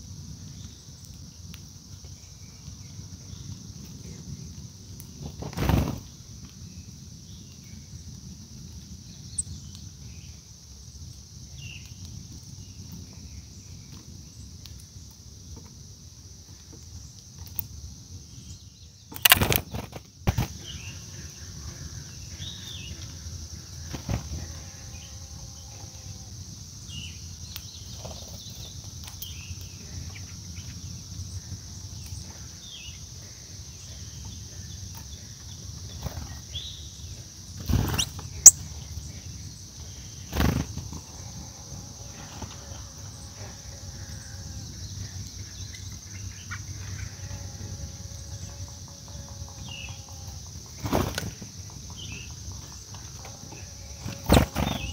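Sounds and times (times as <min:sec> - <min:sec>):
bird wingbeats fluttering: 0:05.2 - 0:06.1, 0:19.2 - 0:20.7, 0:23.8 - 0:24.5, 0:37.6 - 0:38.5, 0:40.2 - 0:41.1, 0:50.6 - 0:54.9
high-pitched insect drone: 0:29.8 - 0:54.9.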